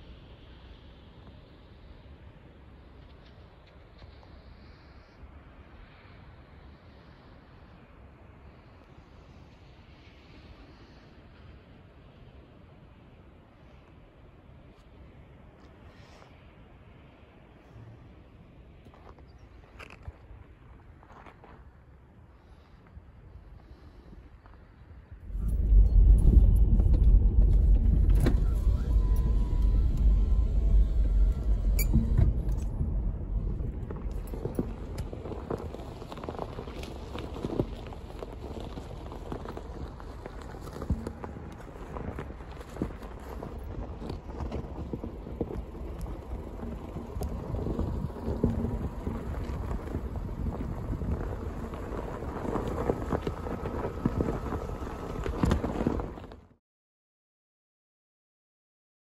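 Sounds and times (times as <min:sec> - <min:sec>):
car tyres and engine rumbling: 0:00.0 - 0:56.6
wind buffeting microphone: 0:25.0 - 0:56.4.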